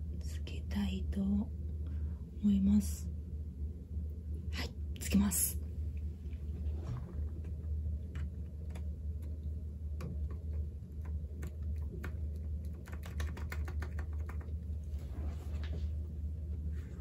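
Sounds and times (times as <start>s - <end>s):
steady low hum: 0.0s - 17.0s
mechanical keyboard keys clicking: 11.4s - 14.5s.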